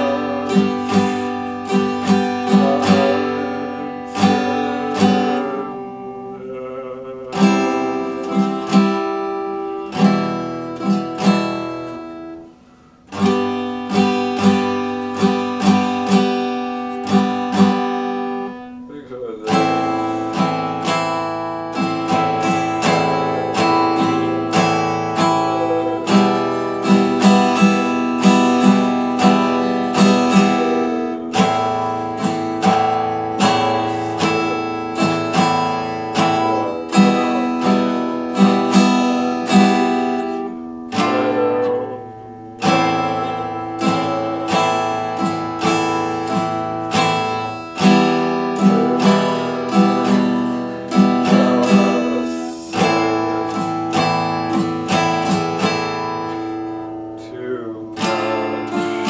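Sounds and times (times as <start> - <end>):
acoustic guitar strumming chords: 0.0 - 59.0.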